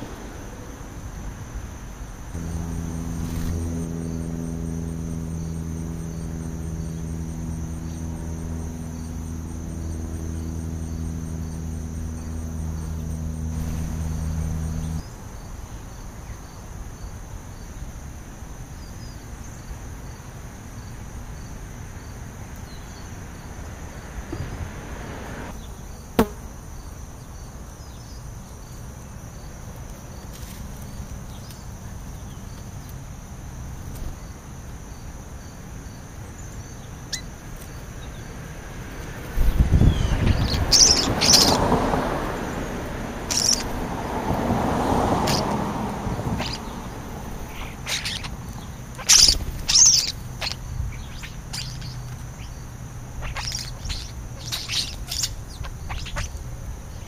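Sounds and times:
low machine hum: 0.0 - 15.5
insects trilling: 0.0 - 57.0.

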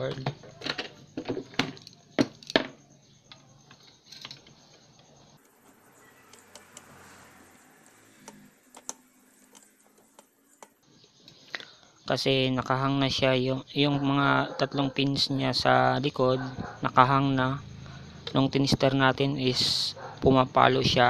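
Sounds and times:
screwdriver clicks and taps: 6.3 - 6.9.

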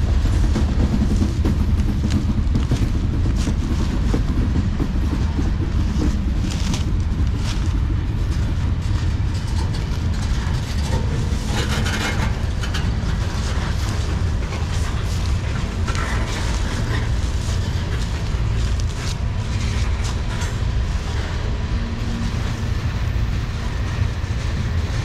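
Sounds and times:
freight train wheels rumbling: 0.0 - 25.0
clicks and clanks: 5.2 - 20.8.

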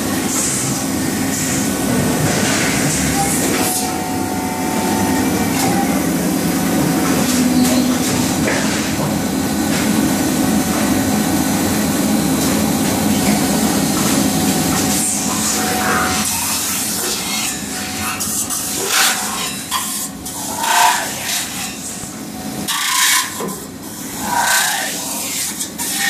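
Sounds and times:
industrial machinery hum: 0.0 - 26.0.

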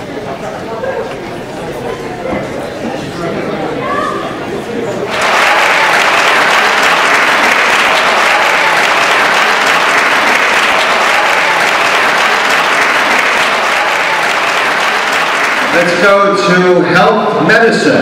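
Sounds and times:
audience applauding: 5.1 - 16.2.

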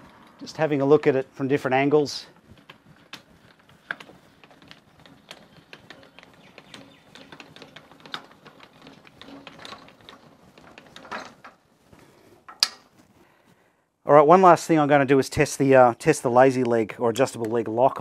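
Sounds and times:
light stand mechanism clicking: 2.4 - 11.6, 12.5 - 13.0.

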